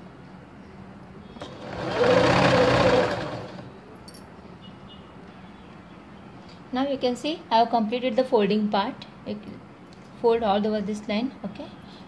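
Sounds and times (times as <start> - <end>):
sewing machine stitching: 1.4 - 3.7.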